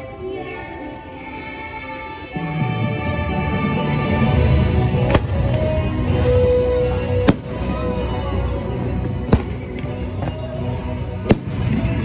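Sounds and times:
music soundtrack: 0.0s - 12.0s
fireworks bursting with bangs: 4.2s - 6.0s, 6.9s - 12.0s.

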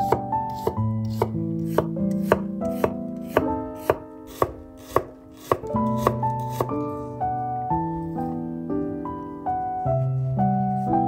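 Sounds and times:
knife chopping onion on wooden board: 0.0s - 6.8s
soft background music: 0.0s - 11.0s.

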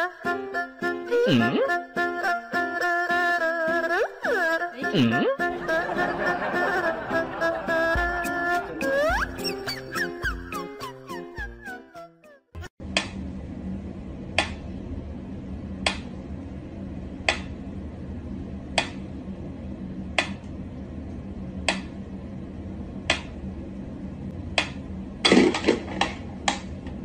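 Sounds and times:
low steady hum: 12.8s - 27.0s.

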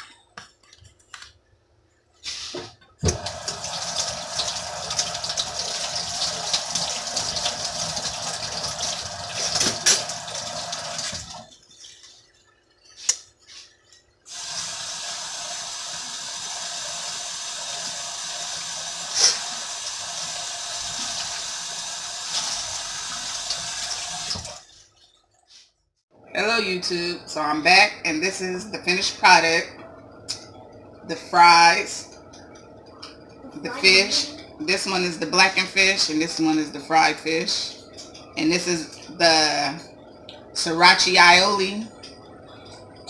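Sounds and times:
sink tap running: 3.0s - 11.6s, 14.3s - 24.6s.

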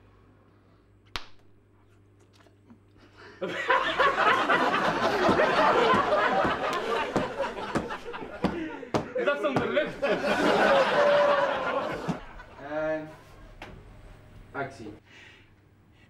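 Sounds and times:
loud laughter: 3.4s - 8.9s, 9.8s - 12.6s.

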